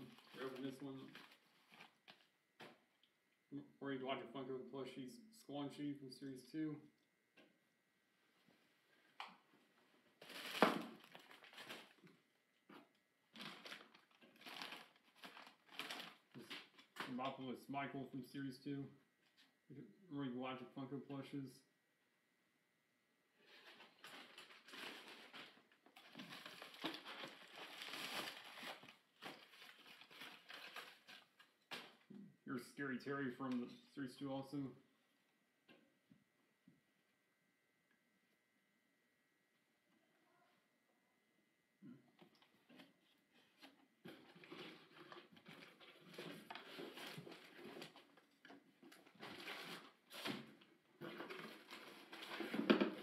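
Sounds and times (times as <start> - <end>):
packaging crinkling and rustling: 0.0 - 2.8, 10.1 - 12.2, 12.8 - 17.1, 23.4 - 32.1, 42.8 - 53.0
cardboard boxes rustling: 23.5 - 31.4.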